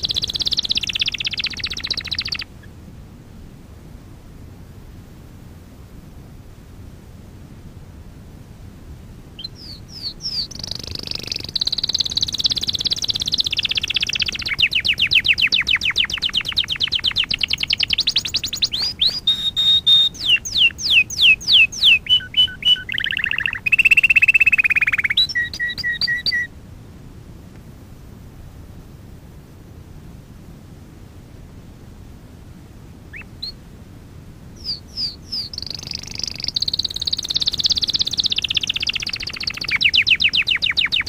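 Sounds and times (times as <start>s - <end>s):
canary singing: 0.0s - 2.6s, 9.4s - 26.5s, 33.1s - 33.6s, 34.6s - 41.0s
recording hiss: 0.0s - 41.0s.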